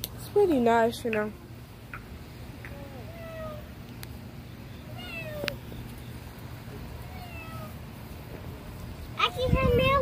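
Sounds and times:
cat meowing: 2.8 - 3.7, 4.8 - 5.6, 7.0 - 7.8.

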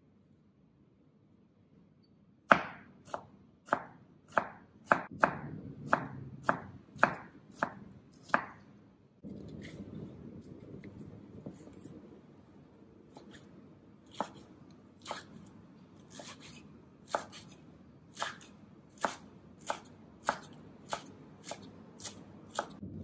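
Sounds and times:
knife chopping on cutting board: 2.5 - 8.7, 14.1 - 22.8
knife shredding lettuce: 13.1 - 22.8.

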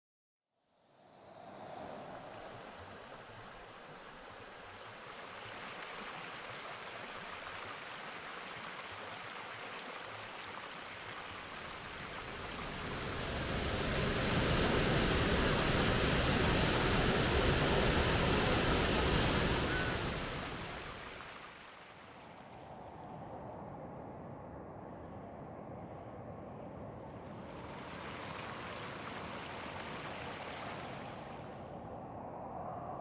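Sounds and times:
waterfall rushing: 9.0 - 21.6.

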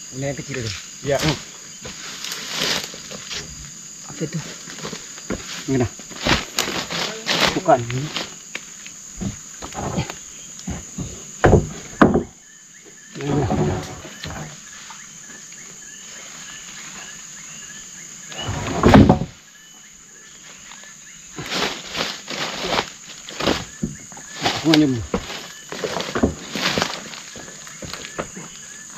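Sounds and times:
forest insects buzzing: 0.0 - 28.9
knocks and thuds: 4.8 - 8.4, 9.2 - 12.4, 18.4 - 19.4, 21.4 - 28.6.

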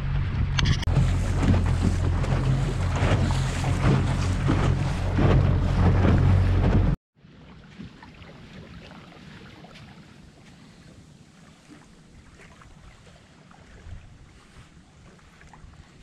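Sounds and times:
outboard motor running: 0.0 - 7.0
wind noise on microphone: 0.0 - 7.0, 13.6 - 16.0.

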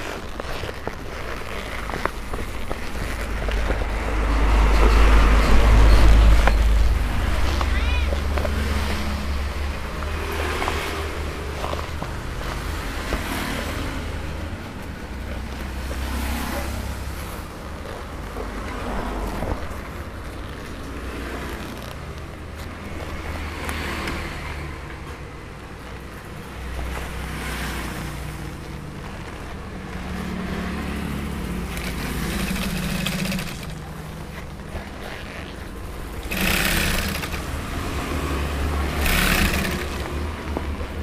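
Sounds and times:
sewing machine stitching: 30.6 - 34.2, 34.9 - 40.6
sewing machine motor humming: 31.4 - 34.1, 36.1 - 40.6.

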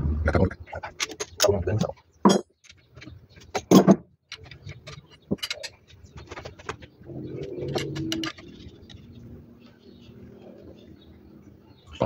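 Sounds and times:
hand tools clinking on metal: 3.5 - 6.0, 7.3 - 8.8.

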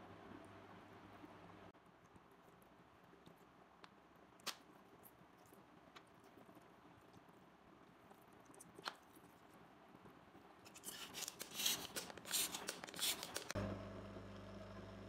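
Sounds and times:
low electrical hum: 0.0 - 15.0
plastic bottle crinkling: 10.7 - 13.6.

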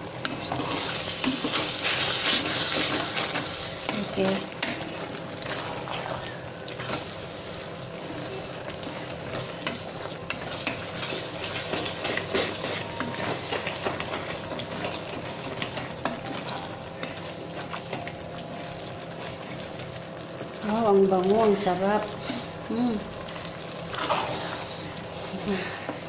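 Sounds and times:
food sizzling: 0.0 - 26.0
wooden spatula scraping a pot: 0.2 - 7.6, 8.8 - 18.0.

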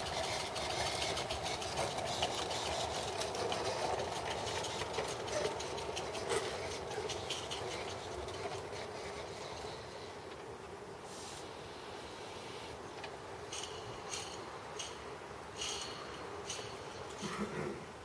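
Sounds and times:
steam locomotive hissing: 0.0 - 18.0
small irregular clicks and ticks: 13.0 - 17.3.

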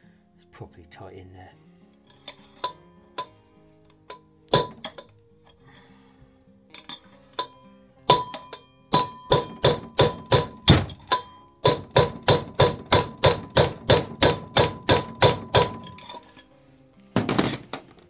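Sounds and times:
hammer striking metal: 2.2 - 3.4, 4.1 - 5.1, 6.8 - 16.4.

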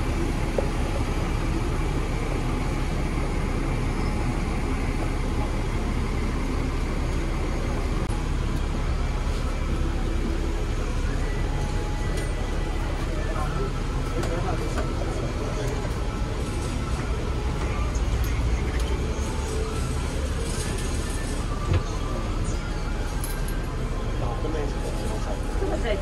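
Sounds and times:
tram rumbling on rails: 0.0 - 26.0.

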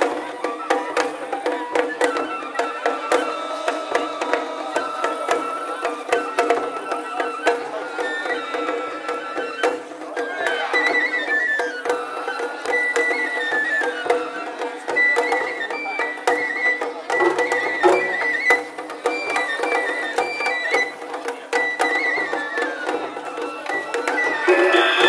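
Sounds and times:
high flute melody: 0.0 - 25.0
sharp percussion strikes: 23.3 - 25.0.

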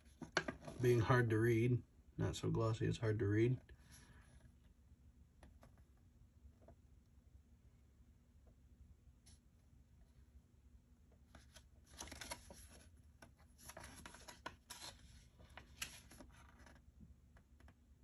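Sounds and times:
paper rustling and crackling: 11.4 - 16.8.

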